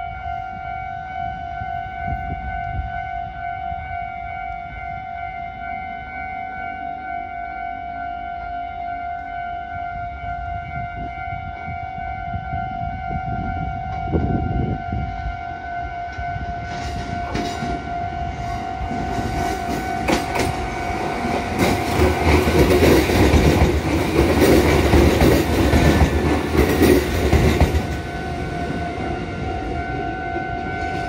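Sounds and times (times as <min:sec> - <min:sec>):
electric train rumble: 0:00.0 - 0:31.0
level-crossing alarm ringing: 0:00.0 - 0:31.0
wheels clicking over rail joints: 0:19.4 - 0:28.1.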